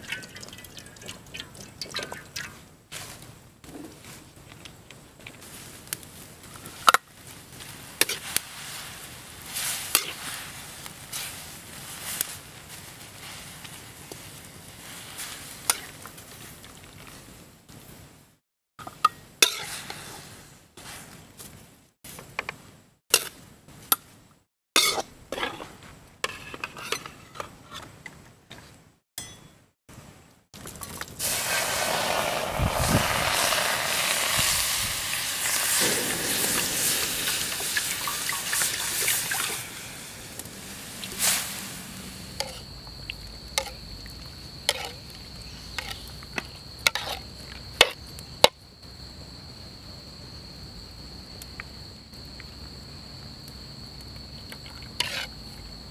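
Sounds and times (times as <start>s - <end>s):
loud sizzling hiss: 7.4s - 16.0s, 31.2s - 46.2s
metal spatula scraping a wok: 19.4s - 20.5s, 24.8s - 27.9s, 35.7s - 42.7s, 44.7s - 45.0s, 45.6s - 46.1s, 46.8s - 47.2s, 55.0s - 55.4s
crickets trilling: 31.2s - 55.9s.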